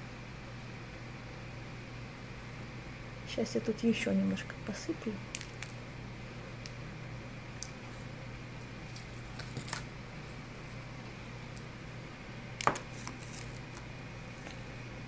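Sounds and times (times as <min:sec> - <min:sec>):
candies clicking: 0:05.3 - 0:05.8
plastic bag rustling: 0:08.7 - 0:11.0, 0:12.7 - 0:14.7.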